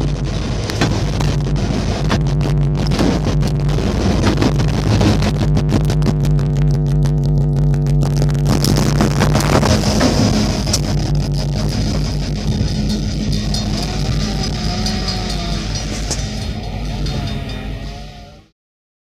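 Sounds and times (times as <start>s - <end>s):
wheels clicking over rails: 0.0s - 18.4s
locomotive engine humming: 0.0s - 18.5s
wavering tone: 6.4s - 18.5s.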